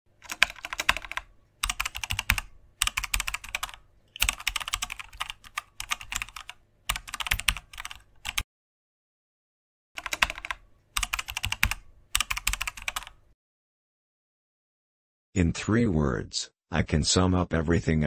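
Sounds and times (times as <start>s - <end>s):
keyboard typing clicks: 0.2s - 8.4s, 10.0s - 13.2s.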